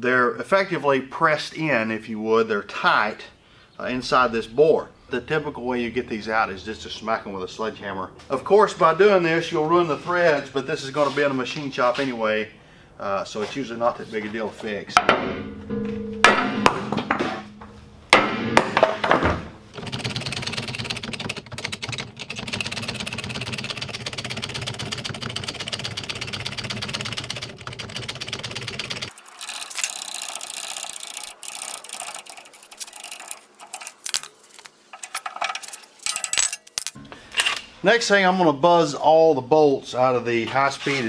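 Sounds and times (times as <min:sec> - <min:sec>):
sledgehammer ringing on steel: 0:15.0 - 0:19.1
fast mechanical rattle: 0:19.7 - 0:36.9
steel parts clinking: 0:29.1 - 0:37.7.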